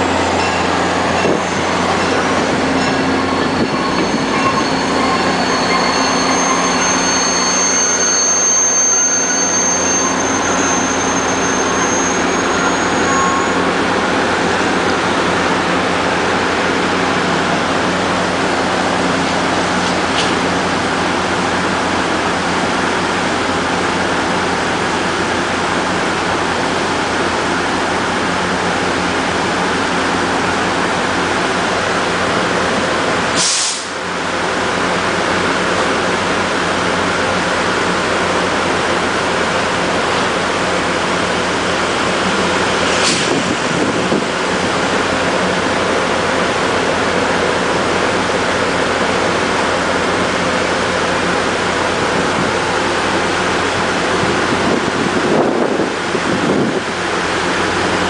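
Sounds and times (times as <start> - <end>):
locomotive diesel engine drone: 0.0 - 58.0
short air hisses: 33.4 - 34.0, 42.9 - 43.5.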